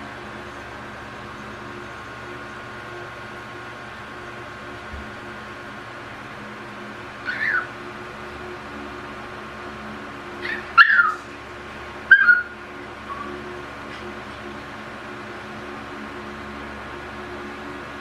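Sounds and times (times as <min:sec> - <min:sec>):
puppy yipping: 0:07.2 - 0:07.7, 0:10.4 - 0:11.3, 0:12.1 - 0:13.3.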